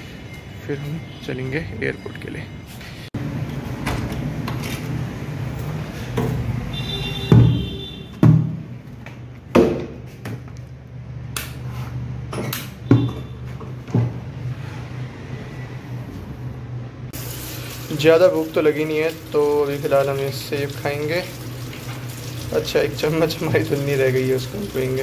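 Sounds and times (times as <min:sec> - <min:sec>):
plastic bucket knocks: 0:07.3 - 0:08.6.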